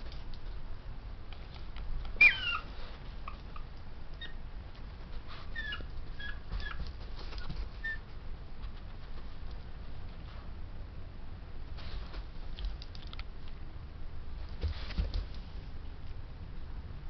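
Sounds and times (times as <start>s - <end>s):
puppy yipping and whimpering: 2.2s - 4.4s, 5.4s - 8.1s.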